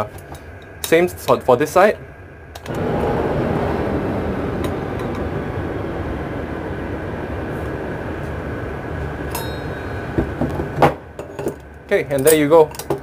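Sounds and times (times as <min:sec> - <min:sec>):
faint steady whine: 0:00.0 - 0:13.0
mechanical rumble: 0:02.3 - 0:11.9
metal tools clinking on pipe fitting: 0:11.3 - 0:13.0.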